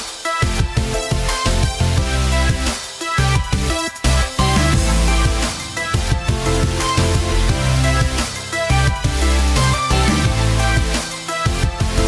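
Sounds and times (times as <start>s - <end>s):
electronic music with heavy bass: 0.0s - 12.0s.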